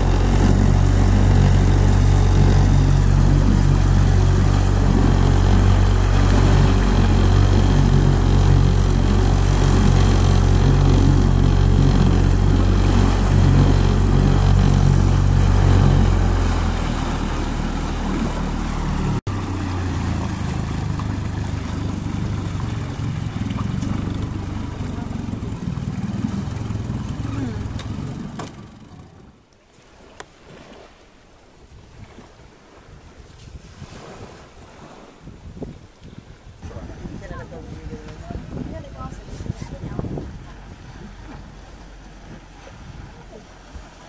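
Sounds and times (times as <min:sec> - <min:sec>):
outboard motor running: 0:00.0 - 0:44.0
water rushing from wake: 0:00.0 - 0:44.0.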